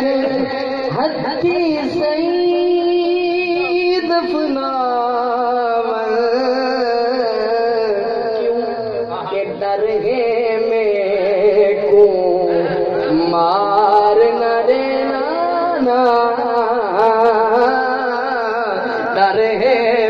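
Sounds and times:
man singing unaccompanied: 0:00.0 - 0:20.0.

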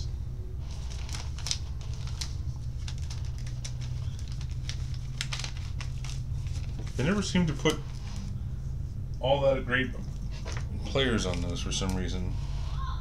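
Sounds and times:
steady low hum: 0:00.0 - 0:13.0
card packs clicking and crinkling: 0:00.7 - 0:08.4, 0:10.1 - 0:12.1.

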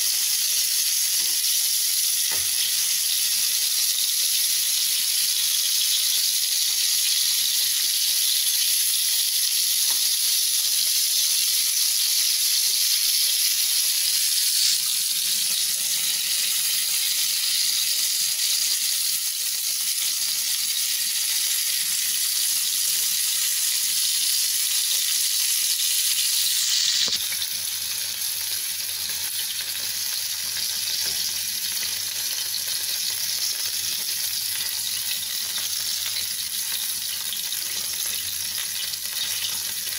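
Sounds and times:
meat sizzling in frying pan: 0:00.0 - 0:39.9.

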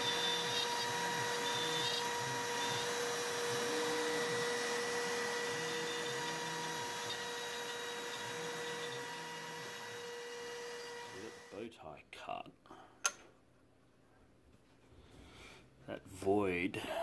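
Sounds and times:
end mill cutting wood: 0:00.0 - 0:11.6
router spindle high tone: 0:00.0 - 0:11.6.

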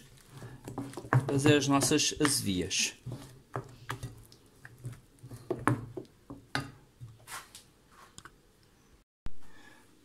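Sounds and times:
wooden spoon scraping bowl: 0:00.0 - 0:06.1.

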